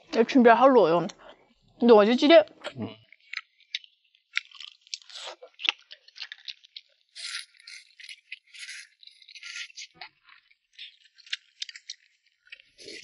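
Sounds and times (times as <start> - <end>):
crisp crunches and clicks: 2.7 - 13.0
noodles slurped: 4.4 - 12.0.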